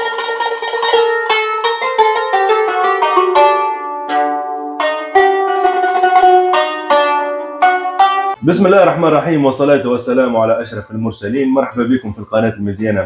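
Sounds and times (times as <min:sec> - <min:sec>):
plucked string instrument melody: 0:00.0 - 0:13.0.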